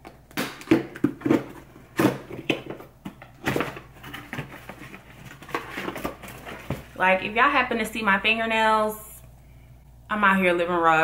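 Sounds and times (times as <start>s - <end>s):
box being handled and opened: 0.9s - 7.0s.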